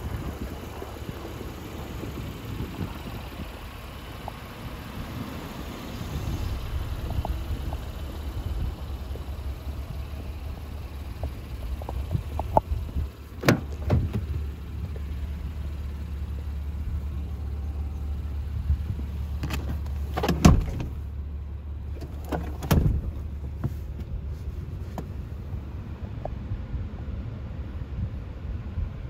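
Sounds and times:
low rumble: 0:00.0 - 0:29.0
outside hiss: 0:00.0 - 0:29.0
car door handle clicks: 0:13.4 - 0:14.3
car door closing thump: 0:13.4 - 0:14.4, 0:19.4 - 0:20.9, 0:22.0 - 0:23.8.

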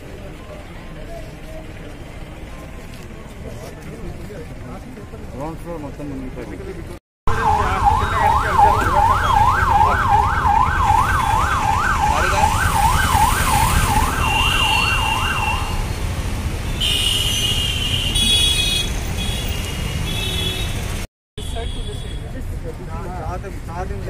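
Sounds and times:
low rumble of traffic: 0:00.0 - 0:24.0
vehicle siren yelping: 0:07.3 - 0:16.0.

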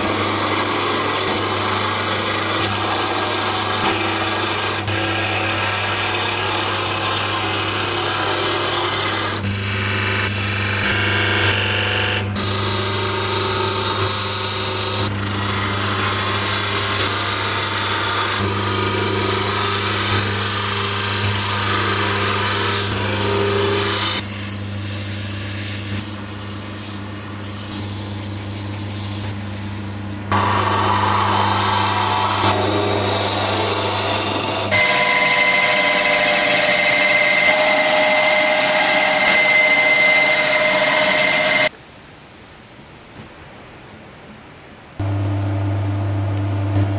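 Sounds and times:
lathe motor hum: 0:00.0 - 0:41.7
tool scraping spinning wood: 0:00.0 - 0:41.7
drill whining into wood: 0:30.3 - 0:41.7.

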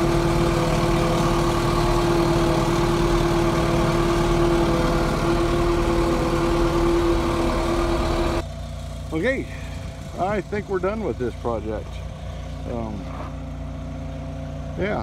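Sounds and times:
steady whine: 0:00.0 - 0:08.5
diesel engine drone: 0:00.0 - 0:15.0.

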